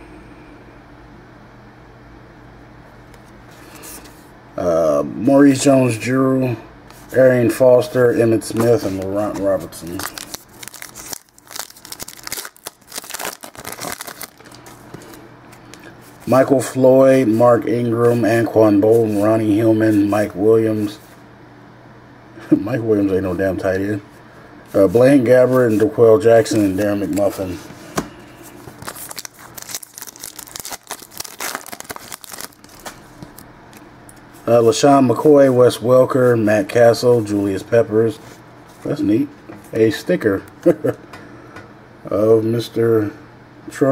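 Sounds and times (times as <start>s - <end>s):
cards rustling: 8.4s - 16.5s, 24.7s - 33.8s
wrapper tearing and crinkling: 9.0s - 15.8s, 28.8s - 33.4s.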